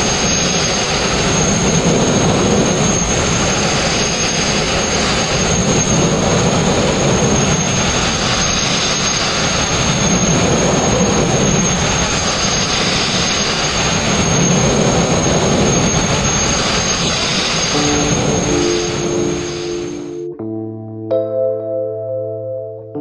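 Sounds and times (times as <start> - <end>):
thin high whistle: 15.7 - 20.3.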